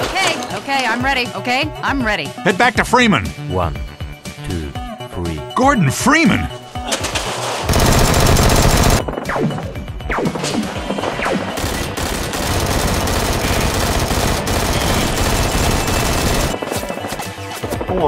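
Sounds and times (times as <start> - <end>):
action background music: 0.6 - 18.0
rapid automatic gunfire: 7.7 - 9.2, 11.0 - 17.1.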